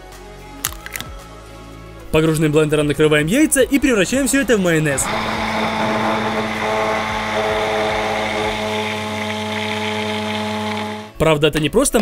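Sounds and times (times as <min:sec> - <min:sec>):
immersion blender humming: 0:04.2 - 0:11.2.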